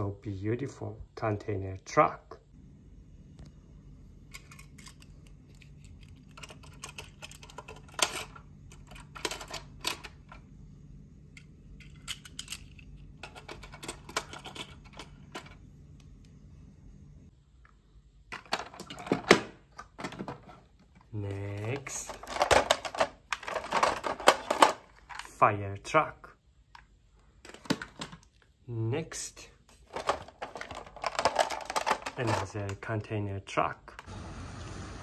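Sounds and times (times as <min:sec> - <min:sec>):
plastic toy truck rattling: 0:06.0 - 0:10.2, 0:21.6 - 0:25.3, 0:29.8 - 0:32.9.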